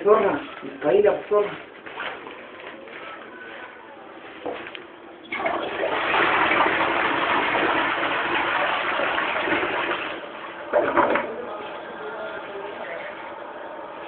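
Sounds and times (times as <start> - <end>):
toilet flushing: 5.2 - 13.4.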